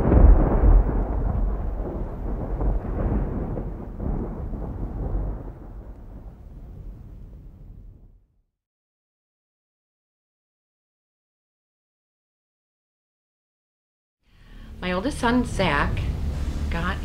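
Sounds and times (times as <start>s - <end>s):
rolling thunder: 0.0s - 8.3s.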